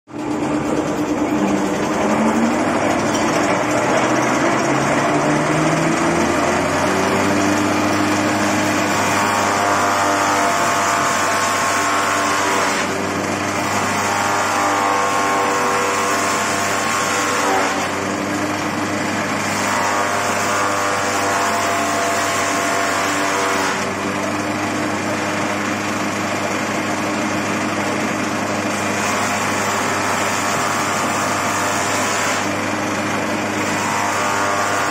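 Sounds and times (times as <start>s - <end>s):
palm frond shredder running: 0.1s - 34.9s
shredder grinding fronds: 0.1s - 34.9s.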